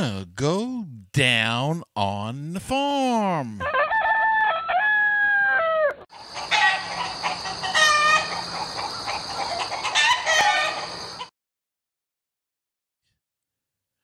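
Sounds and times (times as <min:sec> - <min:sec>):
rooster crowing: 0:03.6 - 0:08.4, 0:09.2 - 0:11.0
hens clucking: 0:06.2 - 0:11.3.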